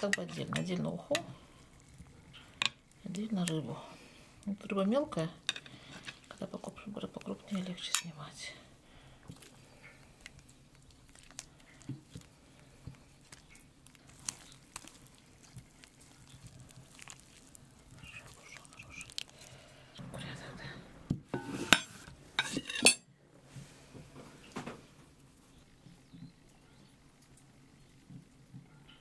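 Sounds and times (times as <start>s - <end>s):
metal skimmer scraping pot: 21.3s - 23.0s
dishes and spoon clattering: 21.3s - 23.1s.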